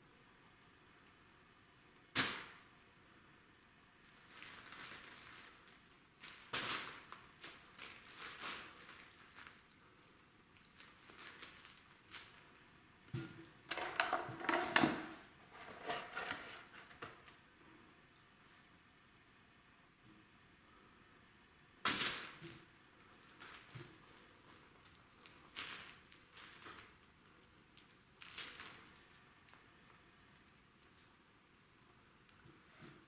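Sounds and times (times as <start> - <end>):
cellophane bag crinkling: 4.0 - 12.7, 21.9 - 31.1.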